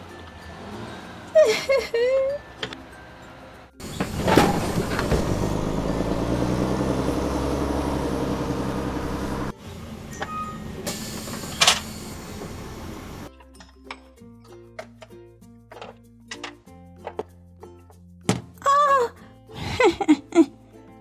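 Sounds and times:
bus engine drone: 0:00.0 - 0:13.3.

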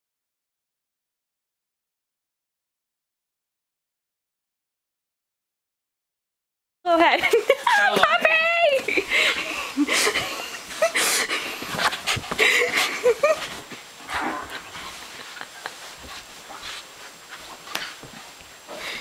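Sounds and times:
scuffling and thumps: 0:10.1 - 0:19.0.

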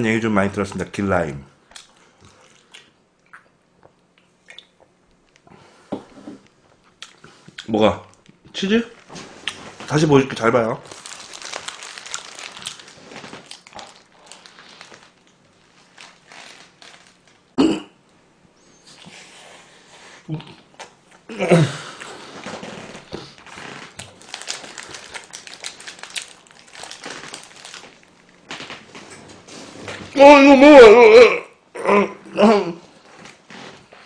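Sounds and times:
wrapper crinkling: 0:10.8 - 0:17.5, 0:22.4 - 0:29.0
wet chewing crackles: 0:10.9 - 0:17.4, 0:22.7 - 0:28.4.

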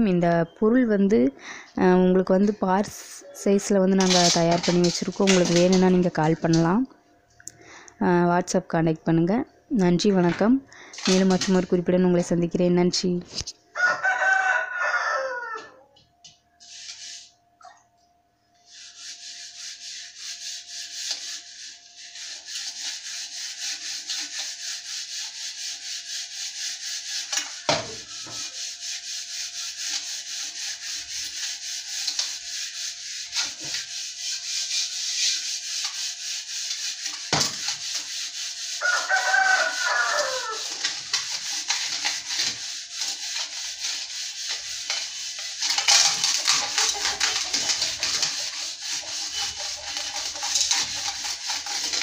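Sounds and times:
hand rubbing metal pot: 0:03.8 - 0:06.7, 0:11.0 - 0:11.9, 0:18.7 - 0:52.0
rooster crowing: 0:13.7 - 0:16.0, 0:38.8 - 0:40.7.

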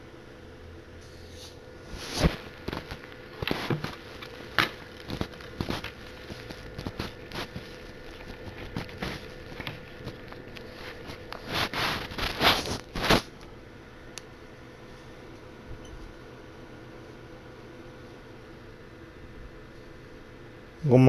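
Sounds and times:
scraping rustles: 0:01.0 - 0:13.4.

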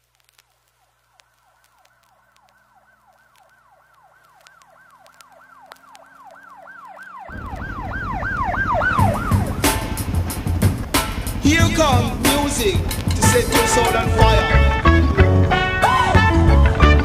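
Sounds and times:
faint clicks: 0:00.0 - 0:07.2, 0:12.2 - 0:13.9
siren wailing: 0:01.2 - 0:17.0
loud low rumble: 0:07.3 - 0:14.8.

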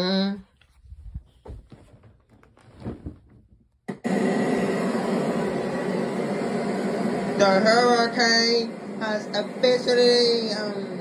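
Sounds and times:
faint hum: 0:03.9 - 0:11.0
loud steady rushing noise: 0:04.1 - 0:11.0.

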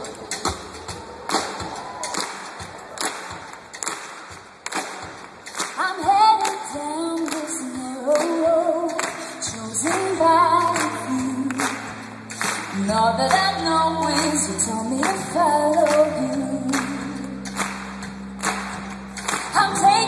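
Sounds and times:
pop band playing: 0:00.0 - 0:20.0
woman singing: 0:05.8 - 0:17.6, 0:19.5 - 0:20.0
bass line: 0:09.9 - 0:20.0.

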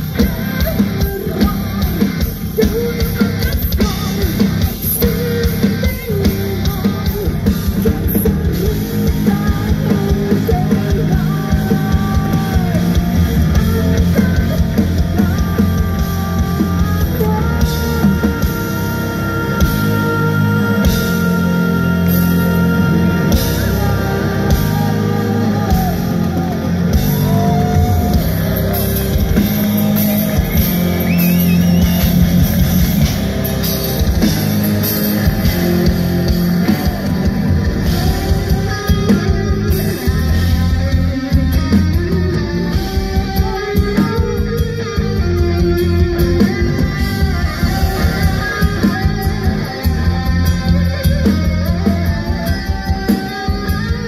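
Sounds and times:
woman singing: 0:00.0 - 0:28.6, 0:37.8 - 0:41.6
live heavy metal band: 0:00.0 - 0:54.0.

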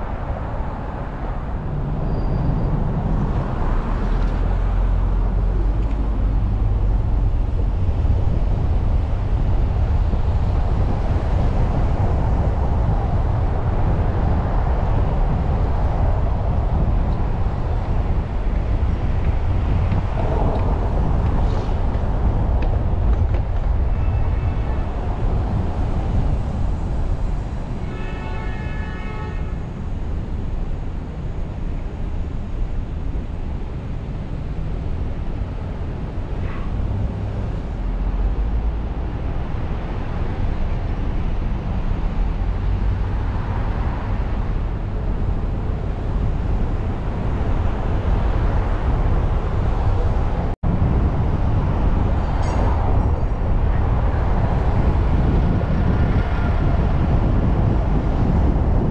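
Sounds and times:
city traffic rumble: 0:00.0 - 0:58.9.

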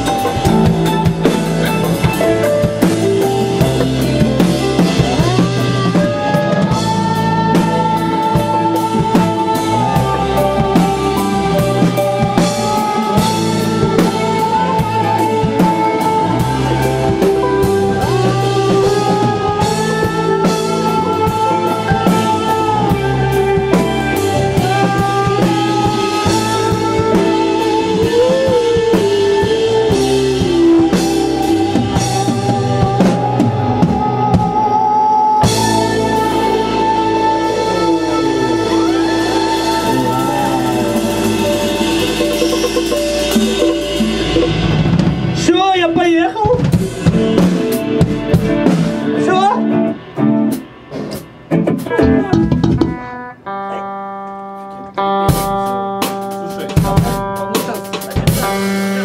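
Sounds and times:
drum kit beat: 0:00.0 - 0:59.0
electric bass notes: 0:00.0 - 0:59.0
gliding electric guitar lines: 0:00.0 - 0:59.0.

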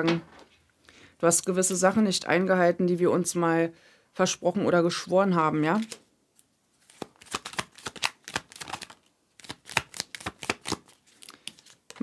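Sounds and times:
cards shuffled by hand: 0:06.8 - 0:12.0.

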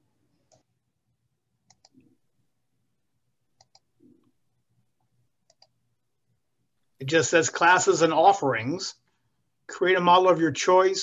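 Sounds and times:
computer mouse clicks: 0:00.4 - 0:00.7, 0:01.6 - 0:02.1, 0:03.6 - 0:04.3, 0:05.4 - 0:05.8.

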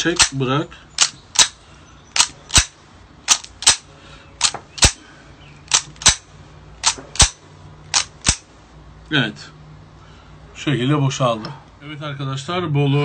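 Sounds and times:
pistol bolt racking clacks: 0:00.0 - 0:00.4, 0:01.0 - 0:01.6, 0:02.2 - 0:03.8, 0:04.4 - 0:05.0, 0:05.7 - 0:08.5.

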